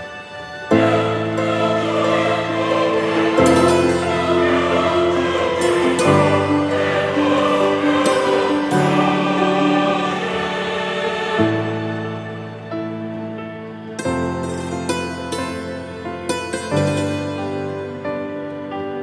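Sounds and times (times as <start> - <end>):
choir-like background music: 0.0 - 19.0.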